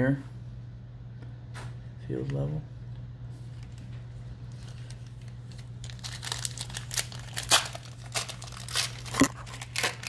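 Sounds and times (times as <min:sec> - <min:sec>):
steady low hum: 0:00.0 - 0:10.0
foil wrapper crinkling: 0:04.4 - 0:10.0.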